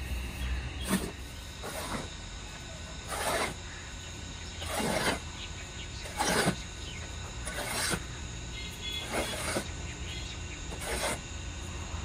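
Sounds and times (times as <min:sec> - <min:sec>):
shovel scraping concrete floor: 0:00.8 - 0:02.1, 0:03.0 - 0:03.6, 0:04.6 - 0:05.2, 0:06.0 - 0:06.6, 0:07.4 - 0:08.0, 0:09.0 - 0:09.7, 0:10.7 - 0:11.2.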